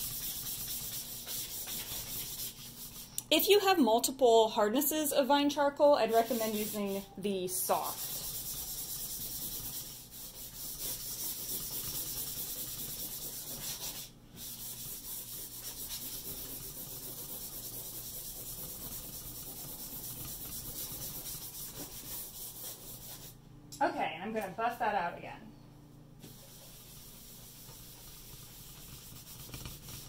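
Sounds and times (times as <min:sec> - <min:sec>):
charcoal scratching on paper: 0:00.0 - 0:03.2, 0:06.1 - 0:07.1, 0:07.7 - 0:23.4, 0:26.2 - 0:30.0.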